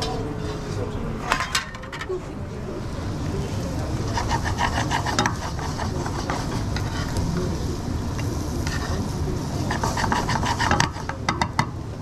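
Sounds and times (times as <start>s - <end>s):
steady low rumble: 2.4s - 9.9s.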